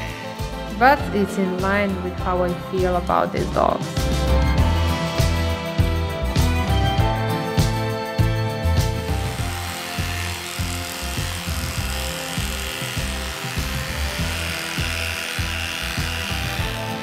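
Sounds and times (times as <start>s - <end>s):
electric dog clippers buzzing: 0.0s - 1.6s, 7.2s - 17.0s
background music with steady beat: 0.0s - 17.0s.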